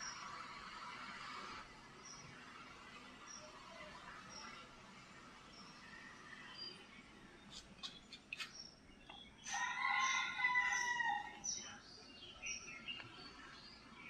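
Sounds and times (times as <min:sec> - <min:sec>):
bird chirps: 0:05.5 - 0:14.0
rooster crowing: 0:09.5 - 0:11.4.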